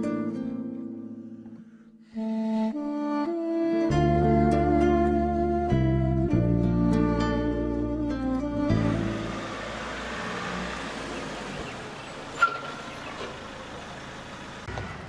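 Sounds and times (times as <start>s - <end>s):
engine low rumble: 3.9s - 15.0s
street noise: 8.4s - 15.0s
brief high squeal: 12.3s - 13.0s.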